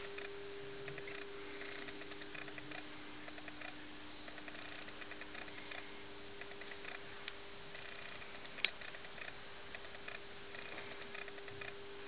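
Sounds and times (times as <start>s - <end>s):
faint irregular ticking: 0.0s - 11.9s
steady low hum: 0.0s - 12.0s
sharp clicks: 6.4s - 11.8s.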